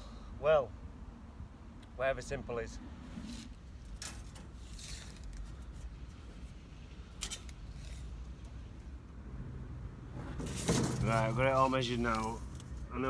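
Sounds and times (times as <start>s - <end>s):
soft rustle: 3.0s - 8.9s.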